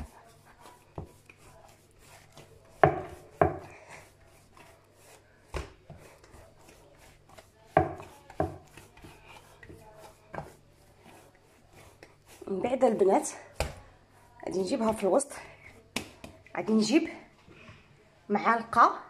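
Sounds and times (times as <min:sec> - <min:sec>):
soft rubbing: 0:00.0 - 0:15.9
dough thumping in bowl: 0:02.3 - 0:03.8, 0:05.4 - 0:11.2.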